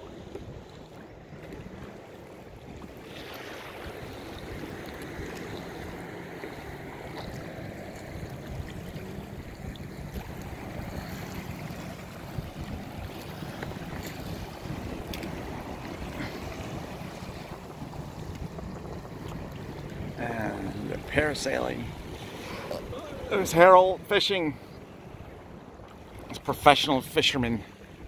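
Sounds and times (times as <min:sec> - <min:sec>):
wind rumbling on microphone: 0:00.0 - 0:23.6
waves lapping around a kayak: 0:00.0 - 0:28.0.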